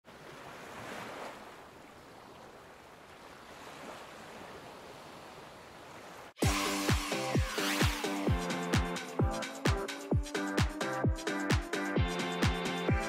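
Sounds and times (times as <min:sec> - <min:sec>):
small waves on sandy beach: 0:00.0 - 0:08.2.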